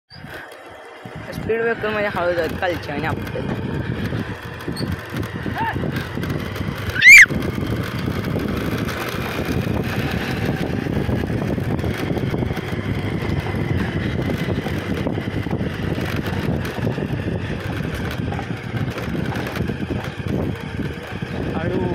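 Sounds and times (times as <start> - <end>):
wind on microphone: 1.0 - 21.9
loud sharp whistle: 7.0 - 7.3.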